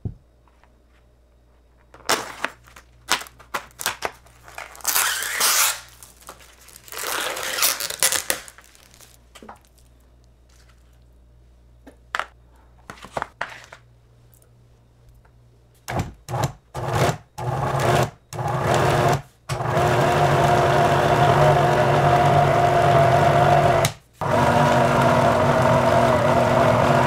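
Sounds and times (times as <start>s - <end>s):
plastic film crinkling and tearing: 2.1s - 9.9s.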